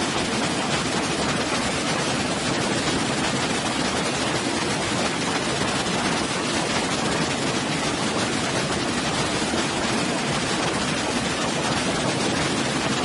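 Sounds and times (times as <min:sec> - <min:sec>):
waterfall pouring into pool: 0:00.0 - 0:13.0.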